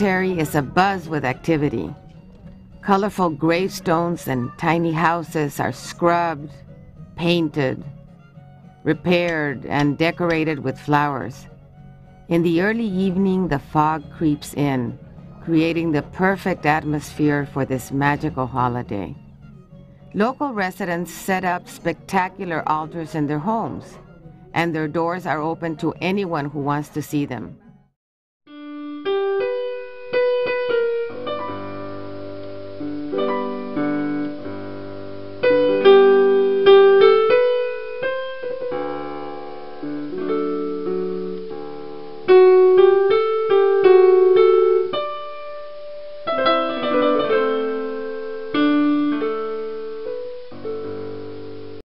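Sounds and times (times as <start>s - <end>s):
solo piano melody: 28.5s - 51.8s.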